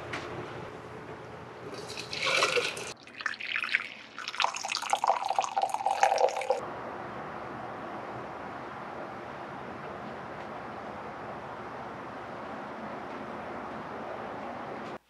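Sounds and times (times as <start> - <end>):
water pouring into container: 1.7 - 6.6.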